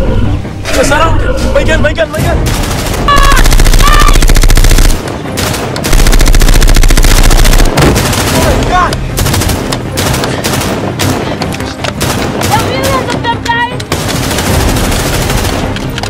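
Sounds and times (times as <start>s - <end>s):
automatic rifle fire: 2.5s - 8.6s.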